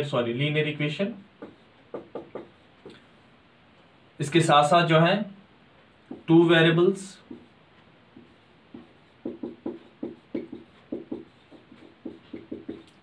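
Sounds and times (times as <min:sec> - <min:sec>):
whiteboard marker squeaking: 0:08.2 - 0:13.0.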